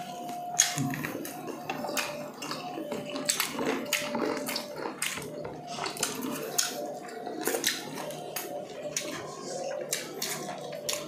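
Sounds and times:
wet chewing: 0.0s - 11.0s
lip smacks: 7.4s - 11.0s.

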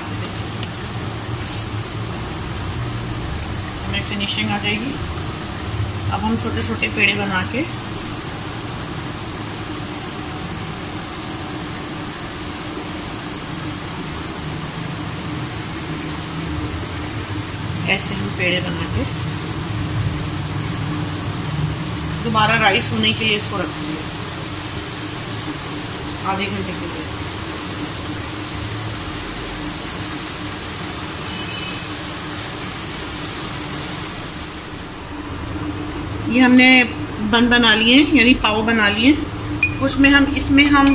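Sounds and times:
even hiss: 1.3s - 1.8s
steady background hum: 34.3s - 40.9s.

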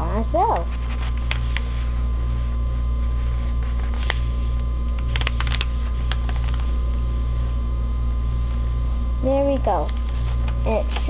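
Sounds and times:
low electrical hum: 0.0s - 11.0s
paper rustling and tapping: 3.7s - 4.3s, 4.9s - 6.8s.

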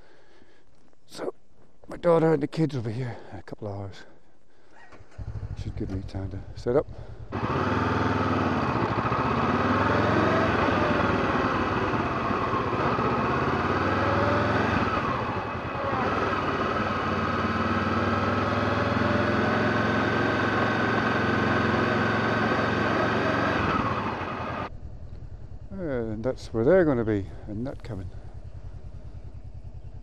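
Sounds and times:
motorcycle engine at low revs: 4.9s - 30.0s.

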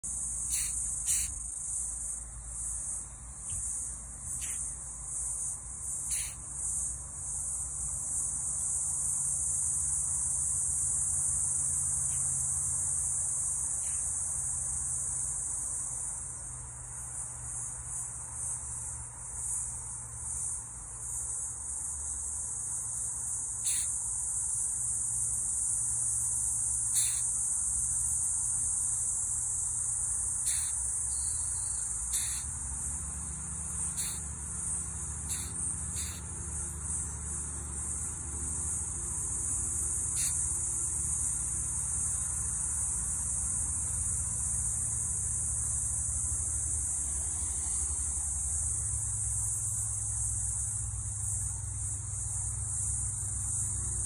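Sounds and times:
beetle hissing: 0.0s - 3.0s, 3.6s - 4.8s, 5.9s - 6.4s, 23.6s - 24.0s, 26.8s - 27.5s, 29.2s - 42.2s.

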